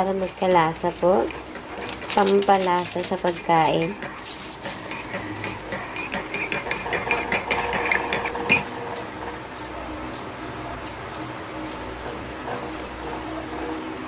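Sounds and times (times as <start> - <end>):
metal spatula scraping a pan: 0.0 - 9.5.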